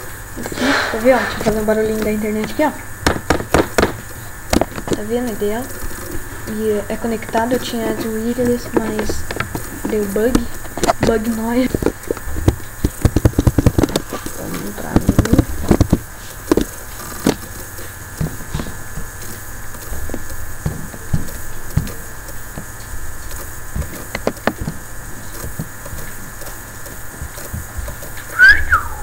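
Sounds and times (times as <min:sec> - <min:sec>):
steady low hum: 0:00.0 - 0:29.0
knocks and clicks: 0:00.4 - 0:05.1.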